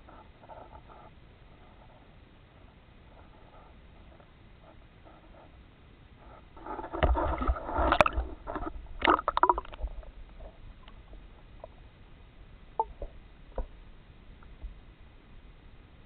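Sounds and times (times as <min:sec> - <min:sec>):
water sloshing and bubbling: 0:06.5 - 0:12.0.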